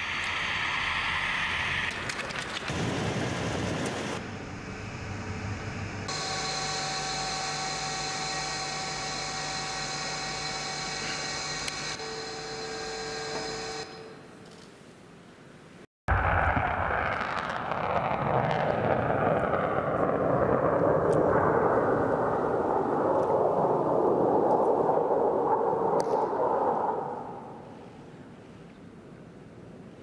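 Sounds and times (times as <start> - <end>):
machine hum with whining tones: 0.0 - 14.7.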